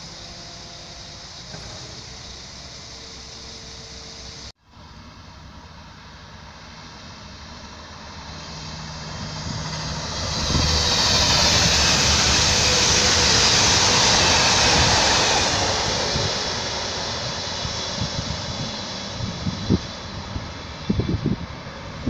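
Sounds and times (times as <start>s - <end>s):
train passing at speed: 0.0s - 22.0s.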